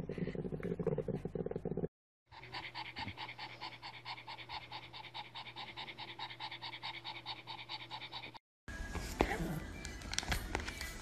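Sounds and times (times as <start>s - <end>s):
dog panting rapidly: 2.3s - 8.4s.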